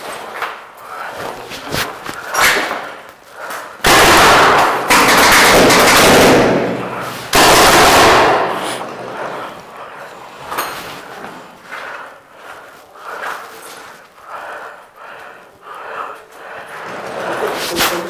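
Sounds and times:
paintball markers firing rapidly: 0:03.8 - 0:08.8.

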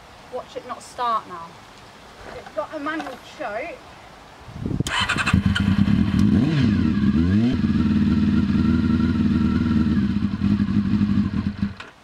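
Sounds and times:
motorcycle engine starting and idling: 0:04.8 - 0:12.0.

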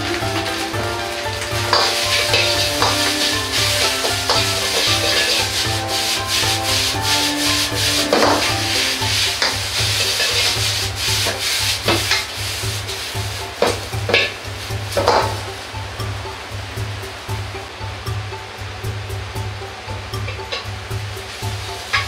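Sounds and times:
metal ladle scraping wok: 0:00.0 - 0:16.1
food sizzling: 0:00.0 - 0:22.0.

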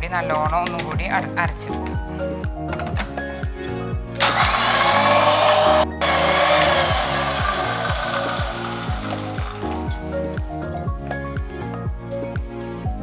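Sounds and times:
blender churning ice and liquid: 0:04.2 - 0:10.0.

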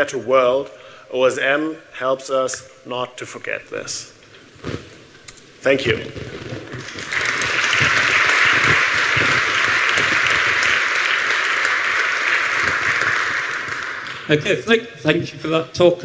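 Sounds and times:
audience applauding: 0:06.2 - 0:14.7.

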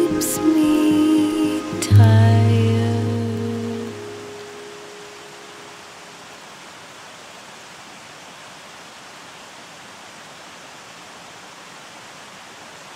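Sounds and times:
waterfall rushing: 0:00.0 - 0:12.9.

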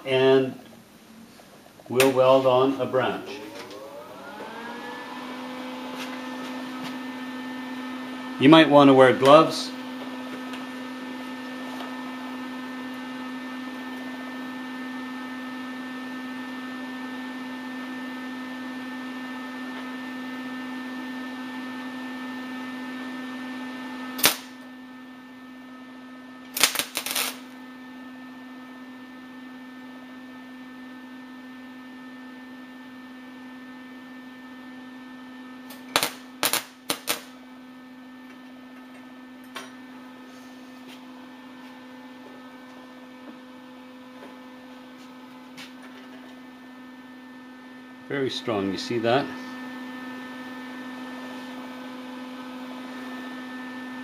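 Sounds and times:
welder electrical hum: 0:00.0 - 0:54.0
welding arc crackling: 0:24.2 - 0:24.7, 0:26.5 - 0:27.6, 0:35.7 - 0:37.4.

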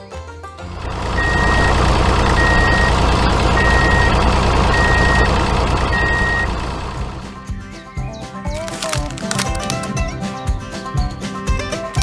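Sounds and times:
heavy vehicle engine rumbling: 0:00.6 - 0:07.5
reversing alarm beeping: 0:00.9 - 0:07.3.

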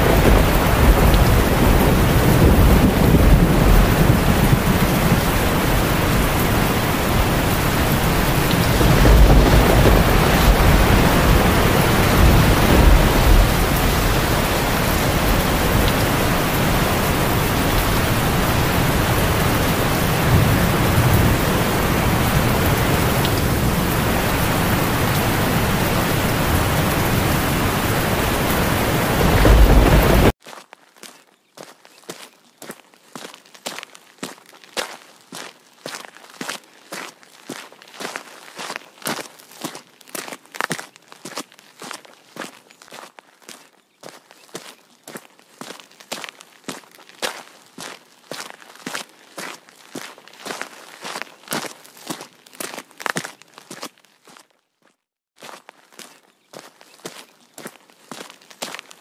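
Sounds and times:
thunder rumbling: 0:00.0 - 0:30.3
torrential rain pouring: 0:00.0 - 0:30.4.

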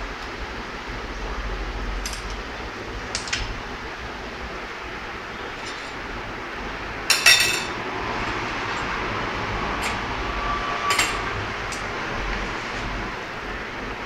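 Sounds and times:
steady background noise: 0:00.0 - 0:14.0
spoon clinking on steel bowls: 0:07.1 - 0:07.8, 0:10.9 - 0:11.8.

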